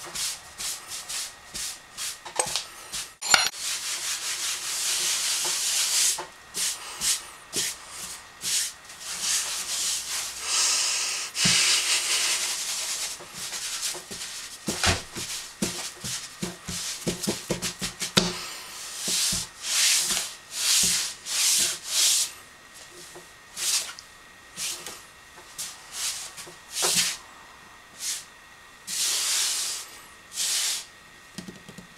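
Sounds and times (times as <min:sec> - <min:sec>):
rubbing or scraping strokes: 0:02.9 - 0:18.1.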